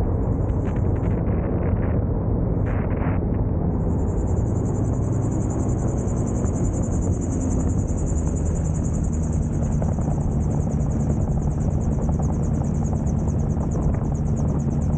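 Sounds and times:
aircraft engine running: 0.0 - 14.9
high-pitched whine: 0.0 - 14.9
wind rumble on microphone: 0.0 - 14.9.

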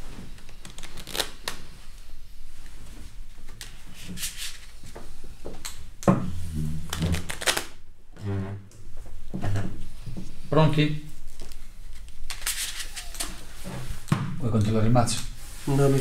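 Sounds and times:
chair scraping on floor: 8.2 - 9.8, 13.4 - 14.0.

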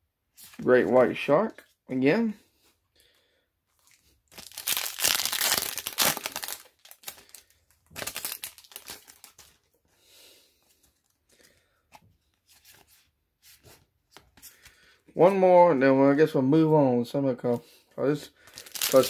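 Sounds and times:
cards rustling: 3.7 - 9.8, 18.4 - 19.0
foil wrapper tearing and crinkling: 4.3 - 9.6, 18.4 - 19.0.

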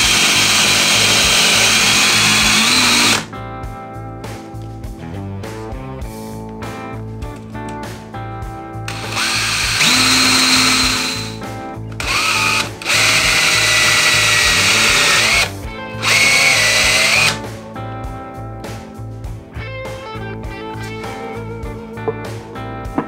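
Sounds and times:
cordless drill whining: 0.0 - 3.3, 8.9 - 11.4, 12.0 - 17.4
guitar music: 0.0 - 23.0.

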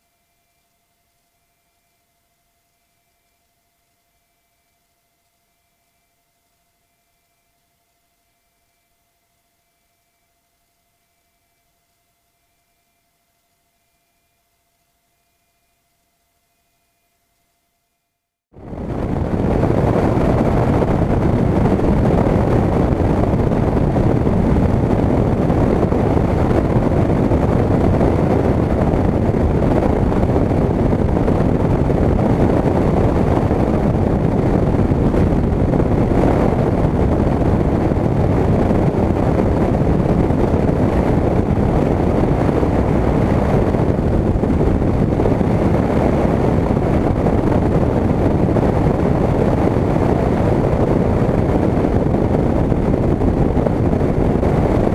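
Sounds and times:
wind rush over camera: 18.5 - 54.9
light plane engine drone: 18.6 - 54.9.

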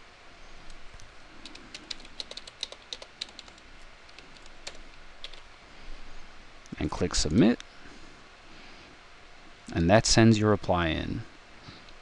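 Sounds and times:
computer keyboard typing: 1.4 - 5.4.

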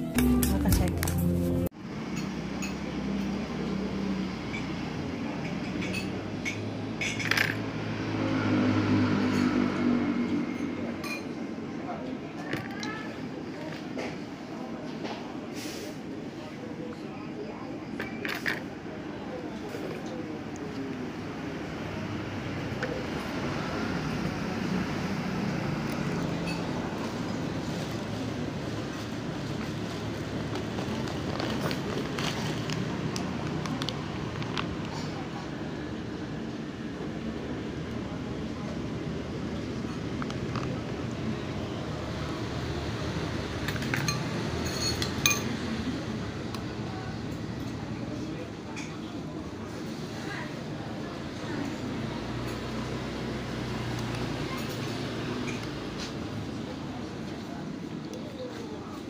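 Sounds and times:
low hum of eatery: 0.0 - 59.0
traffic rumble: 0.0 - 59.0
tableware clinking: 5.5 - 7.6, 43.7 - 45.6.

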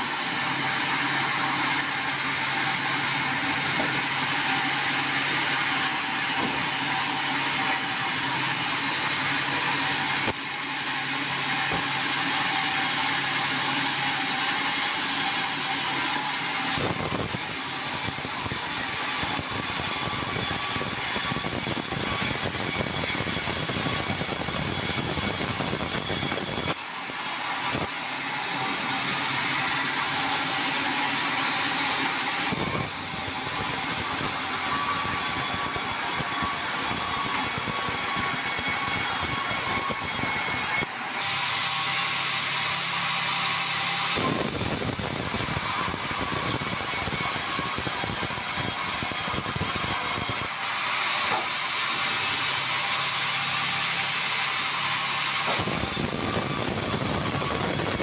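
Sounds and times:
band saw ripping through log: 50.5 - 58.0.

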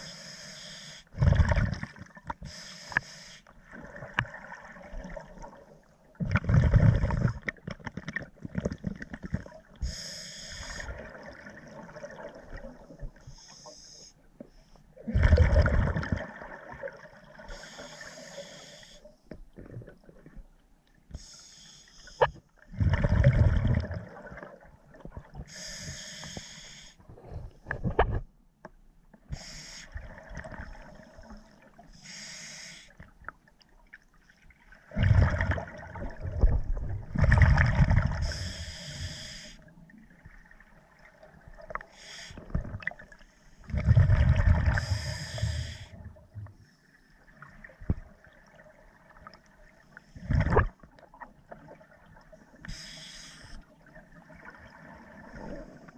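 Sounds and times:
regulator hissing inhalations: 0.0 - 1.1, 2.4 - 3.5, 9.8 - 10.9, 17.5 - 19.1, 21.2 - 22.2, 25.5 - 27.0, 29.3 - 29.9, 32.0 - 33.0, 38.2 - 39.6, 41.9 - 42.4, 44.8 - 46.0, 52.6 - 53.6
exhaled bubbles: 1.2 - 2.2, 3.7 - 9.6, 15.0 - 17.5, 22.7 - 25.4, 34.9 - 38.4, 43.7 - 45.2.

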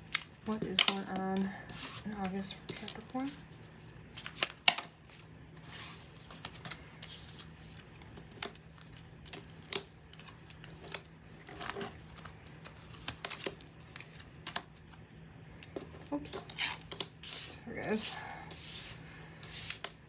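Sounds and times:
cards tapping and snapping: 12.2 - 14.8.

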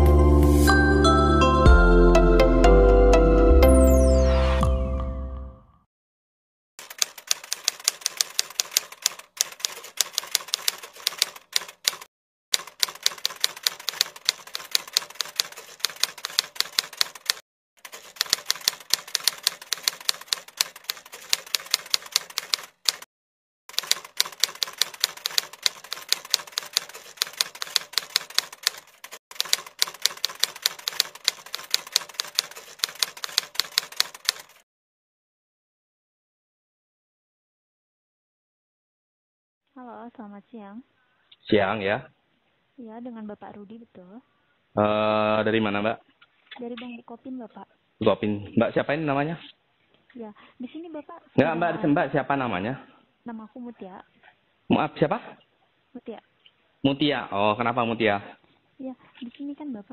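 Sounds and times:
typewriter key clacks: 6.8 - 23.0, 23.7 - 34.6.

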